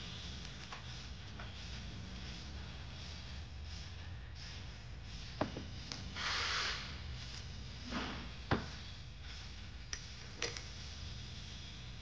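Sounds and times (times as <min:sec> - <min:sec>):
short rubbing hiss: 0:06.0 - 0:07.3.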